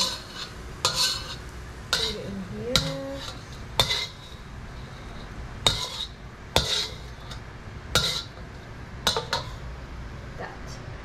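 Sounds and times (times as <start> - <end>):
metal spatula clinking against wok: 0.0 - 4.2, 8.0 - 8.4, 9.0 - 9.6.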